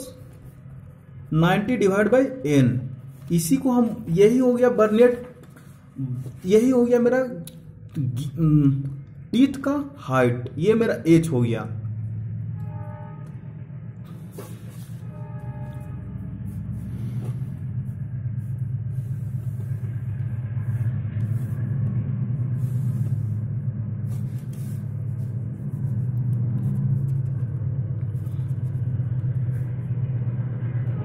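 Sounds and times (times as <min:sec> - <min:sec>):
marker pen scratching on paper: 0:03.0 - 0:07.3, 0:14.1 - 0:30.1
low rumble: 0:11.6 - 0:31.0.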